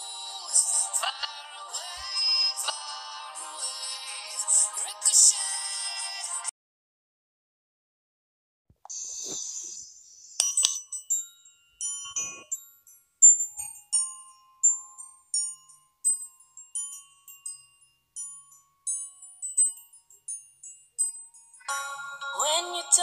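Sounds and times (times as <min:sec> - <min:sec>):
tinkling bell-like melody: 0:00.0 - 0:06.5, 0:10.2 - 0:23.0
high shimmer: 0:08.9 - 0:13.0
faint held tone: 0:08.9 - 0:13.8.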